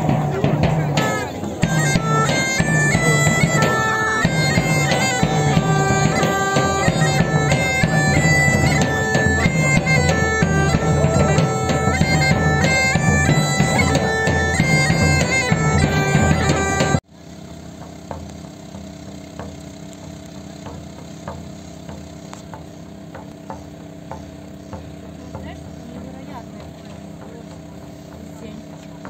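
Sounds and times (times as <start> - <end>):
bagpipe folk melody: 0.0 - 17.1.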